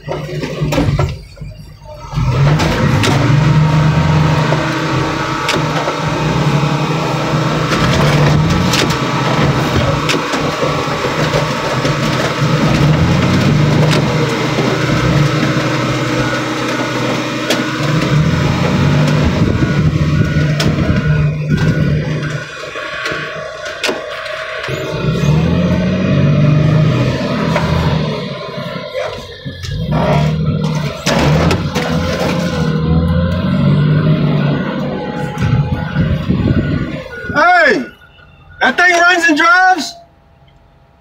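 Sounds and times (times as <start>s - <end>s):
car crusher engine: 0.0s - 41.0s
car body cracking and popping: 7.7s - 14.7s.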